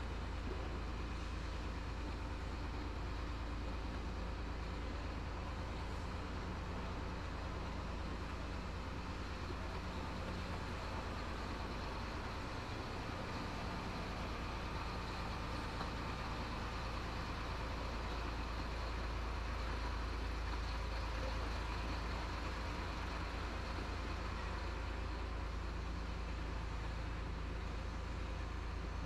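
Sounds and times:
truck diesel engine low hum: 0.0 - 29.0.

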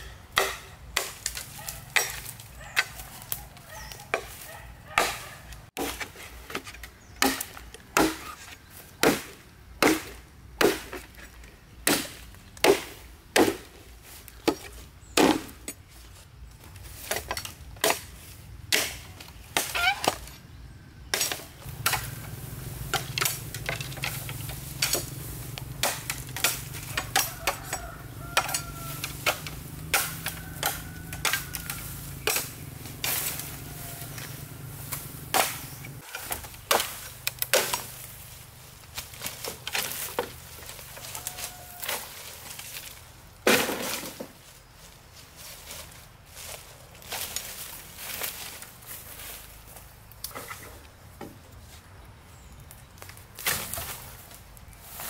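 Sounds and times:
machete chopping bamboo: 0.3 - 11.2, 11.8 - 13.8, 14.4 - 15.8, 17.0 - 20.3, 21.0 - 38.2, 38.9 - 44.3, 53.4 - 54.2
stems and branches cracking: 0.3 - 51.8, 52.5 - 55.0.

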